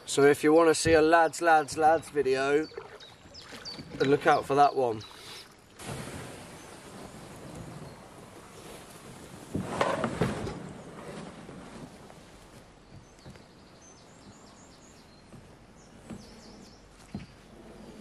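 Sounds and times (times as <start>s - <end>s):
bird chirping: 0.0s - 5.5s, 12.7s - 18.0s
canoe hull scraping and knocking: 0.6s - 18.0s.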